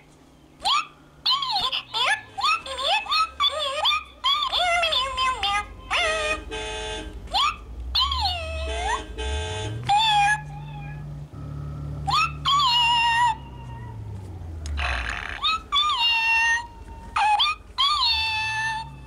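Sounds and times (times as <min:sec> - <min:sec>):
low hum: 0:00.0 - 0:19.0
toy cat meowing: 0:00.7 - 0:06.4, 0:09.9 - 0:11.0, 0:12.1 - 0:13.8, 0:14.8 - 0:19.0.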